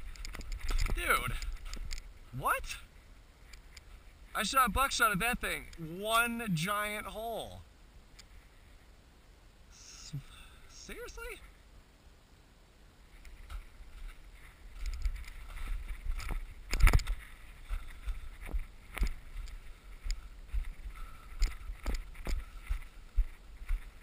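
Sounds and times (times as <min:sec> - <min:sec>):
footsteps crunching through snow: 0:13.7 - 0:24.0.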